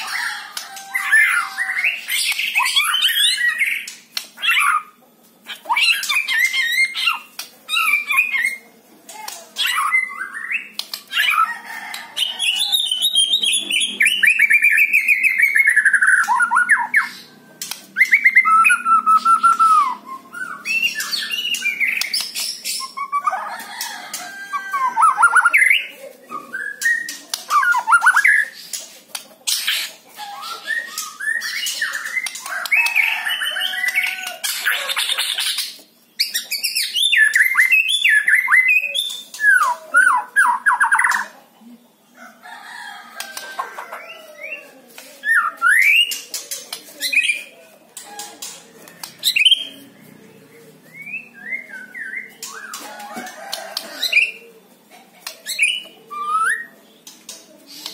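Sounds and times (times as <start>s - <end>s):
bird singing whistled song: 30.4s - 32.4s.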